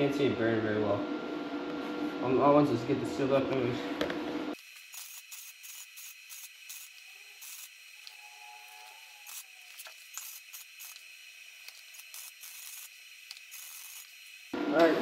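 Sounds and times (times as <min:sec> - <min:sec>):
welding arc crackling: 0:04.5 - 0:15.0.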